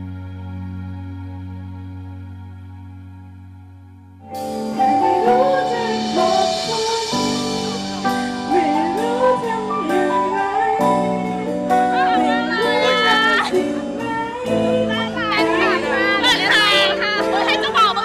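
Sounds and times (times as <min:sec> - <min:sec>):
instrumental accompaniment: 0:00.0 - 0:18.0
woman singing: 0:04.5 - 0:18.0.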